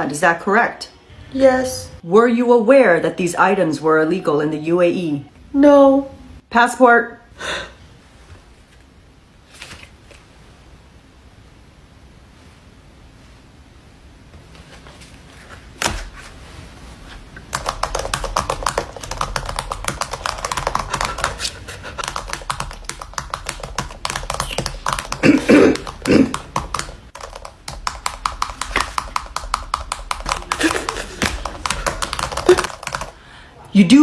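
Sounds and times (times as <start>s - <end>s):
keyboard typing: 17.4s - 33.2s.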